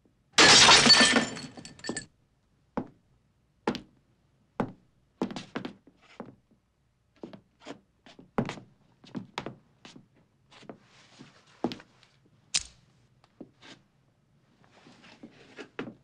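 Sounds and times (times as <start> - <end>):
glass bottle shattering: 0.4 - 2.0.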